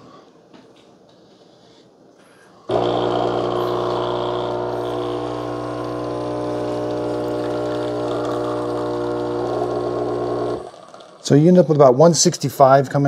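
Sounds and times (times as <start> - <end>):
espresso machine pump humming: 2.7 - 11.3.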